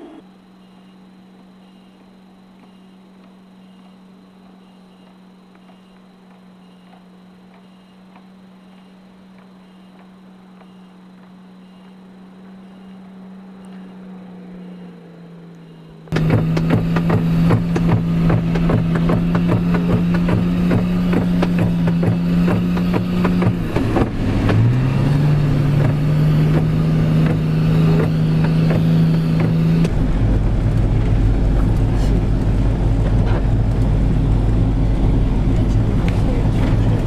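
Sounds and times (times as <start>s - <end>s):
deeper rumble: 0.0s - 37.0s
vehicle engine under load: 0.0s - 37.0s
vehicle body knocking and rattling: 16.1s - 37.0s.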